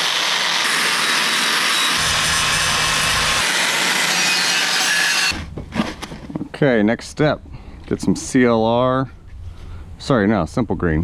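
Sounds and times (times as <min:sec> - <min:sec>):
angle grinder polishing metal: 0:00.0 - 0:05.4.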